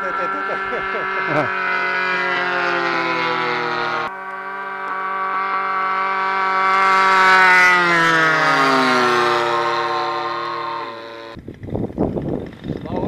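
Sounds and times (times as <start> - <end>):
model airplane motor whining: 0.0 - 13.0.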